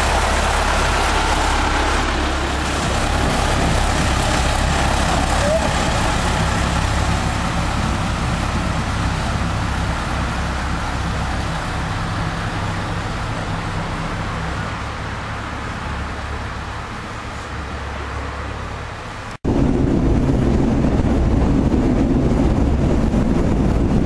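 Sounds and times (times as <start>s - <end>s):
diesel locomotive engine running: 0.0s - 24.0s.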